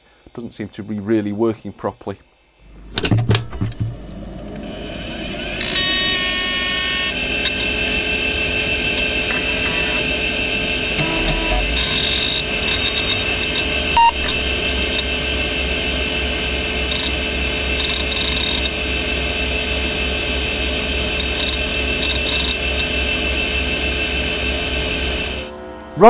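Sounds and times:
computer fans and drive whirring: 0:00.2 - 0:26.0
short computer beep: 0:11.0 - 0:15.0.

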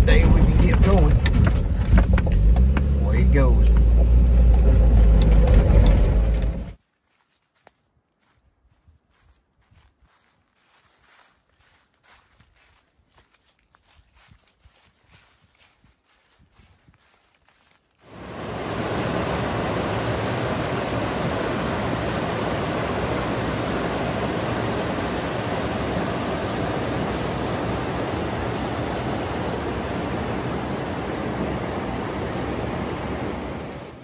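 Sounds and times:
footsteps in dry leaves: 0:06.8 - 0:18.2
whitewater rushing over rocks: 0:18.1 - 0:34.0.

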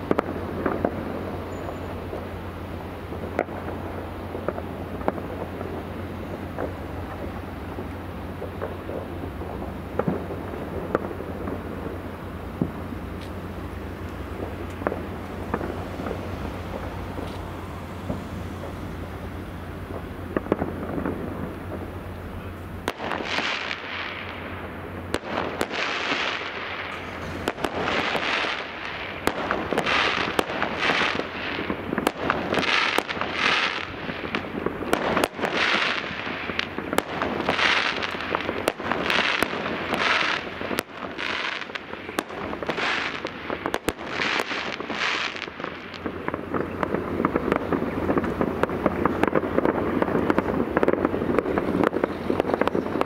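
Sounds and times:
fireworks bangs: 0:00.0 - 0:53.0
fireworks hissing rush: 0:00.0 - 0:53.0.

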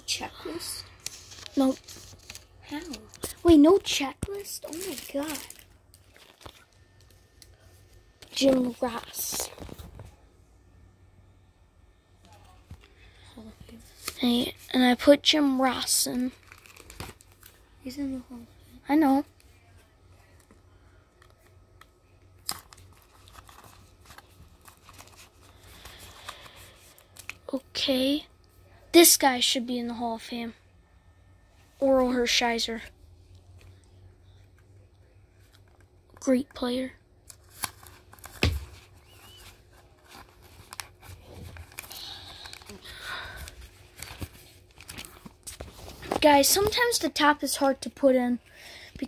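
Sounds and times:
plastic sleeve crinkling: 0:00.8 - 0:07.2, 0:16.2 - 0:17.6
sharp plastic crackle: 0:01.0 - 0:07.5, 0:16.2 - 0:17.6.

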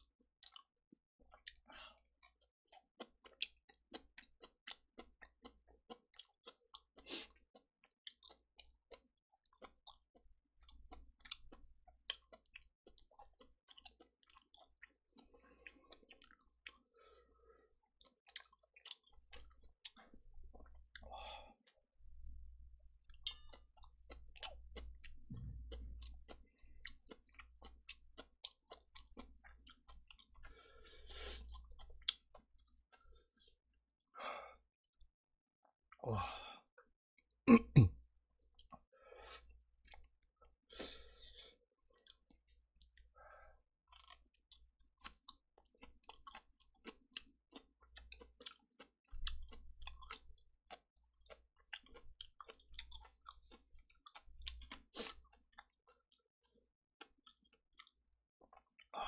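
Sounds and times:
wet chewing: 0:01.3 - 0:21.8, 0:23.0 - 0:33.6, 0:43.9 - 0:59.0.

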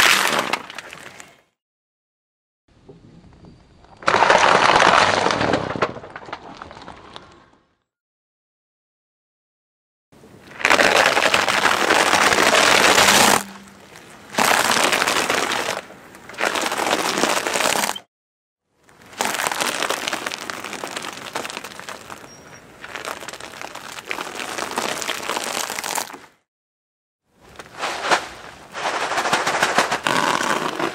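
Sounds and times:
cardboard box crushed under tyre: 0:10.6 - 0:13.7.

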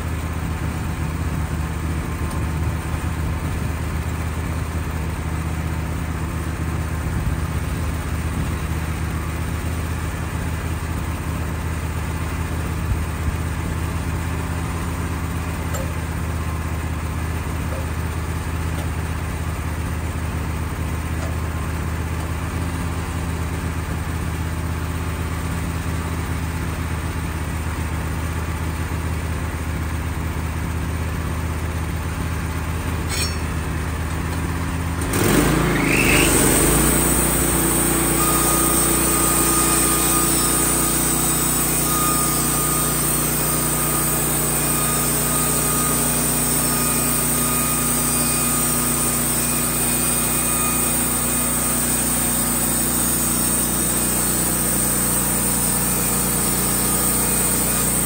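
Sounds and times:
sawmill engine running: 0:00.0 - 0:58.0
band saw blade whine: 0:32.5 - 0:58.0.

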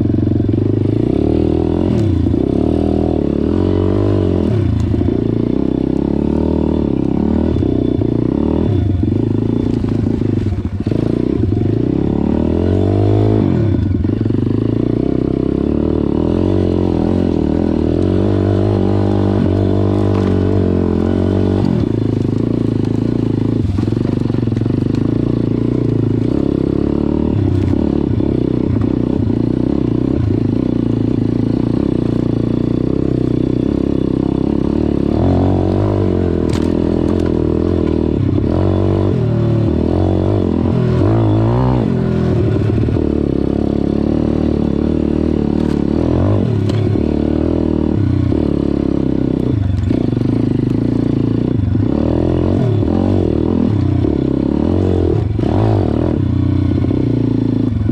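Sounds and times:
motorbike engine revving: 0:00.0 - 0:57.9.

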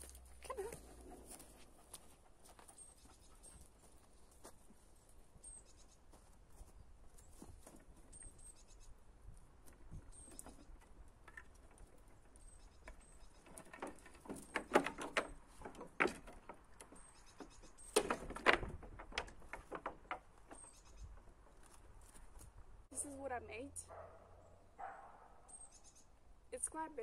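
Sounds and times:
wooden gate knocks and rattles: 0:09.6 - 0:21.4.

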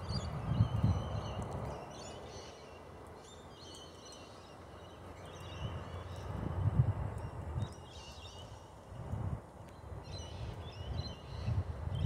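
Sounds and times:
birds chirping: 0:00.0 - 0:08.9.

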